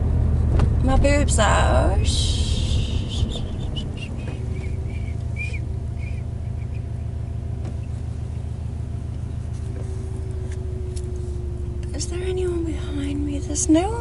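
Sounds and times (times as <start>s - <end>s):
car engine and road rumble: 0.0s - 14.0s
faint steady hum: 0.8s - 14.0s.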